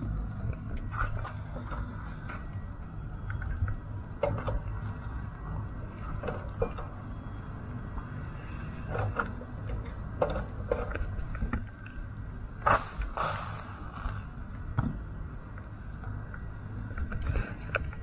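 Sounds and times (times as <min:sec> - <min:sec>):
steady low rumble: 0:00.0 - 0:18.0
loud hiss: 0:12.7 - 0:14.2.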